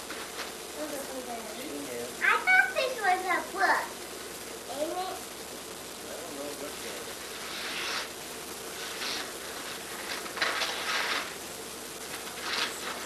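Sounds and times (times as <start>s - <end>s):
wrapping paper rustling and tearing: 0.0s - 1.2s, 7.2s - 13.0s
steady background hiss: 0.0s - 13.0s.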